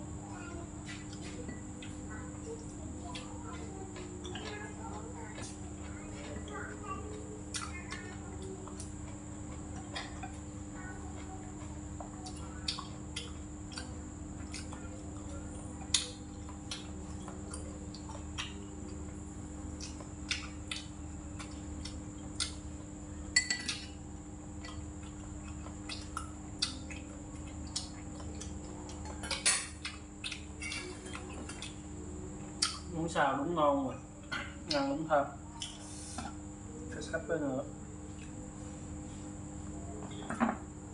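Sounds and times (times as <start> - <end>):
steady background hum: 0.0 - 40.9
utensils clinking against bowls: 23.4 - 24.0, 30.6 - 31.7.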